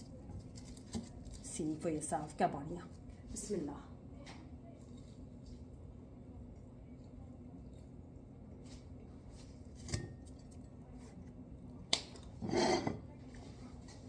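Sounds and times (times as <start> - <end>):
chewing crispy pastry: 0.0 - 1.6
plate scraping on countertop: 12.4 - 13.2.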